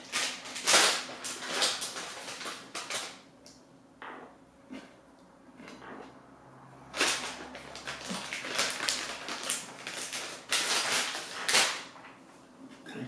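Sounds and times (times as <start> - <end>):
plastic bag crinkling: 0.0 - 3.3, 6.9 - 12.1.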